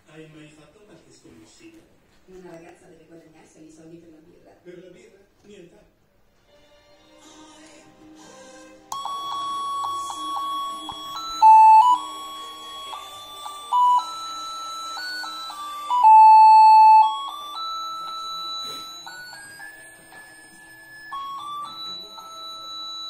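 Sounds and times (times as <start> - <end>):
beeping electronic melody: 9.0 - 20.0.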